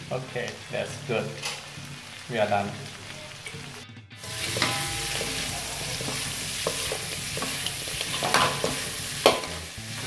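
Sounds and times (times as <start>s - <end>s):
meat sizzling in a wok: 0.0s - 10.0s
spatula scraping a wok: 3.4s - 10.0s
metal clicking on pan: 4.4s - 9.6s.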